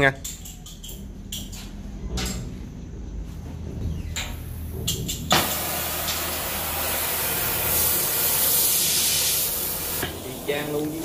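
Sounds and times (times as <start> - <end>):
cutting torch flame hissing: 5.2 - 11.0
torch ignition pop: 5.3 - 6.8.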